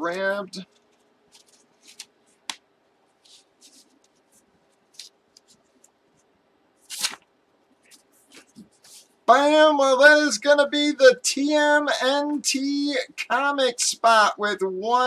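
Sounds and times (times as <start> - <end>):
paper rustling and sliding: 0.6 - 2.4, 3.2 - 5.9, 6.9 - 9.2
paper swish: 6.9 - 7.2.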